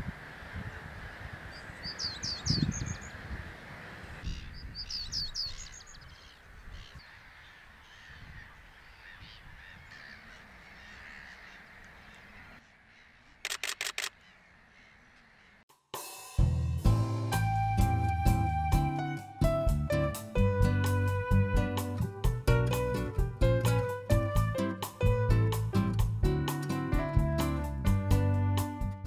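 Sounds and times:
camera shutter clicks: 13.4 - 14.2.

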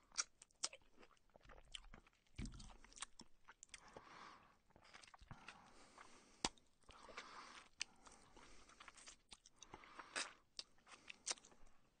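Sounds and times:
person chewing and slurping: 0.1 - 11.8.

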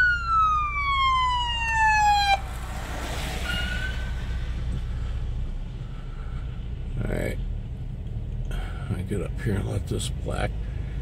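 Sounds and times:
siren wailing: 0.0 - 4.0.

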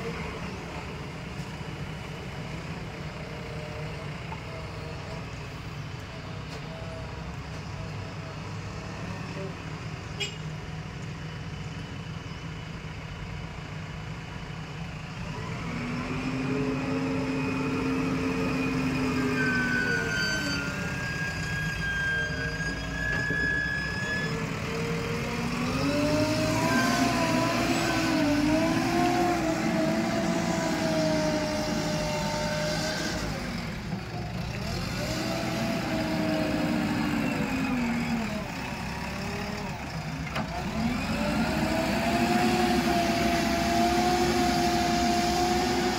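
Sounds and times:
diesel engine revving: 13.4 - 45.9.

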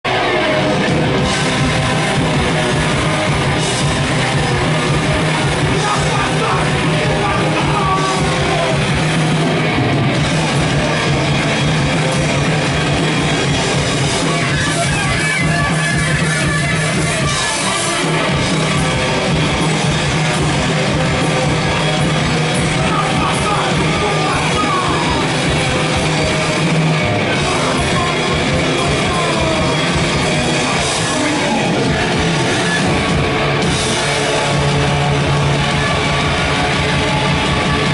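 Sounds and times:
live rock band playing: 0.0 - 37.9
person yelling vocals: 5.7 - 8.8, 22.8 - 25.4.

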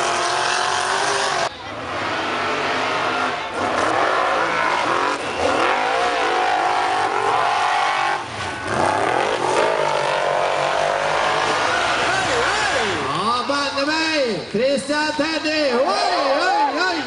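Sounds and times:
buggy engines revving hard: 0.0 - 13.3.

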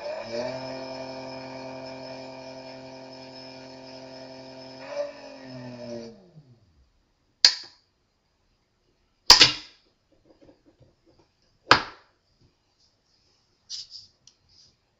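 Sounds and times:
electric motor whine: 0.0 - 6.6.

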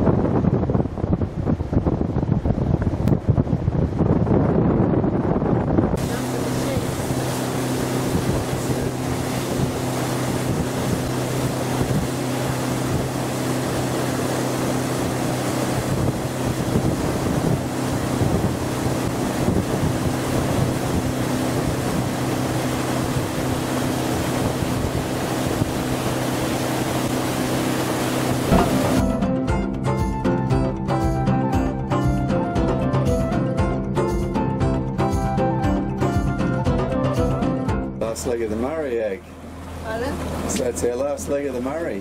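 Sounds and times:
wind on microphone: 0.0 - 29.2
water rushing past hull: 0.0 - 29.5, 38.0 - 42.0
boat engine humming: 0.7 - 42.0.

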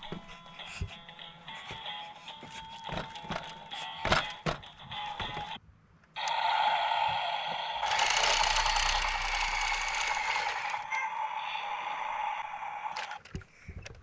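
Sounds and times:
toy electric motor whining: 6.2 - 13.2
plastic gear rattle: 7.9 - 10.8.

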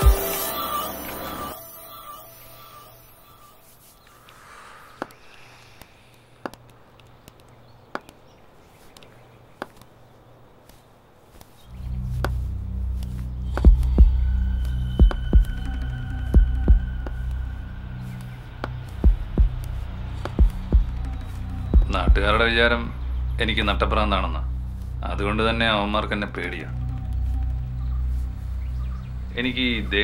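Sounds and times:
faint high sustained tones: 0.0 - 4.8
hard-soled footsteps: 5.8 - 10.0, 10.6 - 17.5, 18.1 - 22.3
steady low drone: 11.7 - 30.0.

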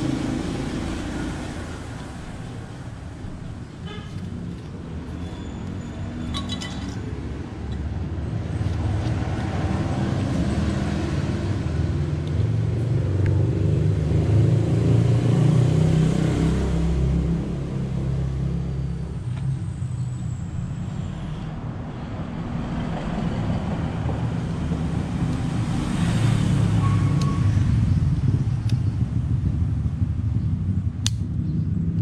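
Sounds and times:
vehicle engine rumble: 0.0 - 32.0
metallic clinks: 6.2 - 7.2.

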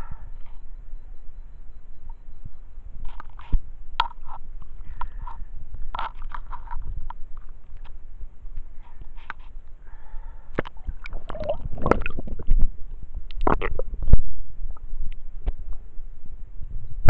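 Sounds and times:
water sloshing and splashing: 10.6 - 12.7.

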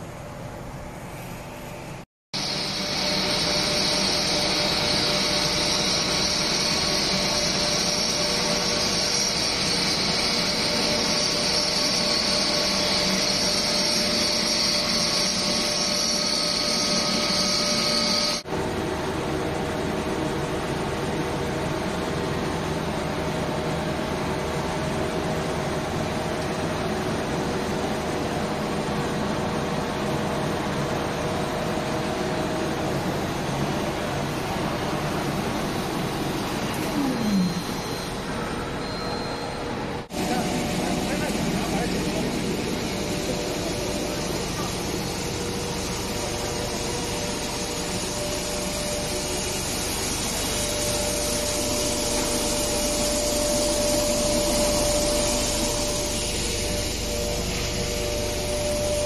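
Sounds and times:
extrusion machinery whirring: 2.4 - 59.0.

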